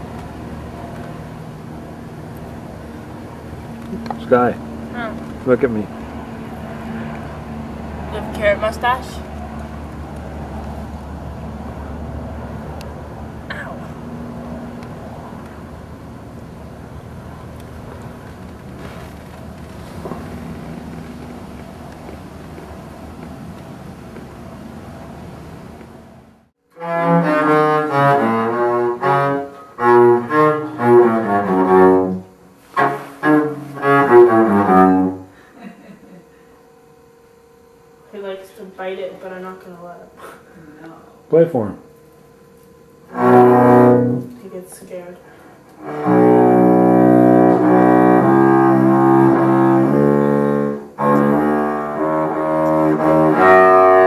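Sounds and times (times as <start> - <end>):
sustained string-like music: 26.7 - 35.3, 41.2 - 54.0.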